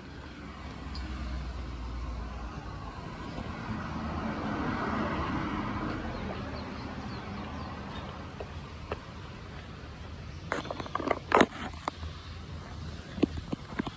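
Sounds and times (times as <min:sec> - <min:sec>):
vehicle passing by: 0:00.0 - 0:09.4.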